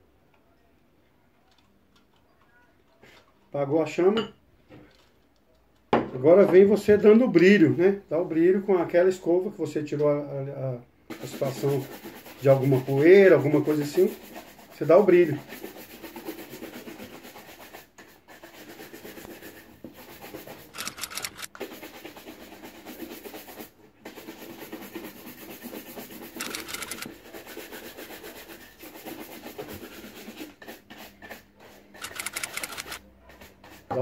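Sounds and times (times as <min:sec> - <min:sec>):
shoe brush buffing shoe: 0:11.1 - 0:34.0.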